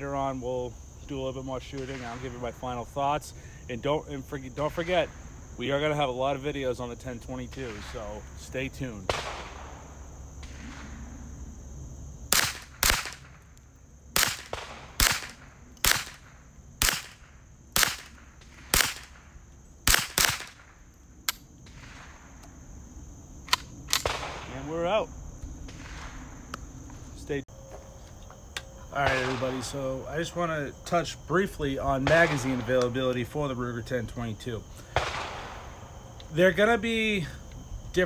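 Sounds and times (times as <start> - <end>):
rifle shots: 9.1 - 11.1, 12.3 - 13.5, 14.2 - 20.8, 23.5 - 24.9, 29.0 - 30.0, 32.0 - 33.0, 34.9 - 35.8.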